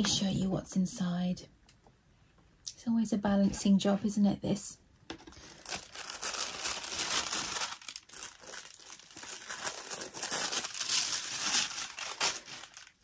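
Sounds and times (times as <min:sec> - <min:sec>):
tissue paper rustling: 0:05.4 - 0:13.0.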